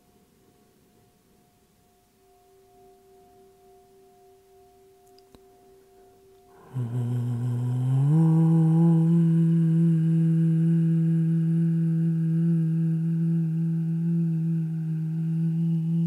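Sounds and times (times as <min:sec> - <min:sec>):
singing bowl ringing: 0:00.0 - 0:16.0
low hummed drone: 0:06.4 - 0:16.0.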